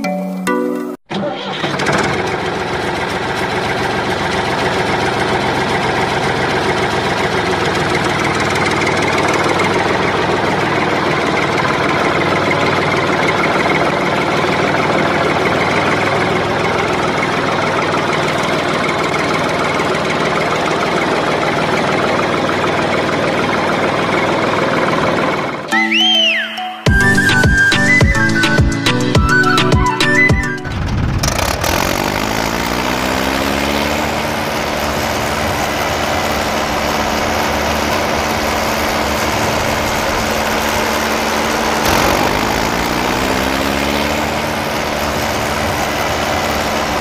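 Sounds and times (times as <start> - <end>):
tractor engine idling: 1.1 - 25.7, 34.0 - 47.0.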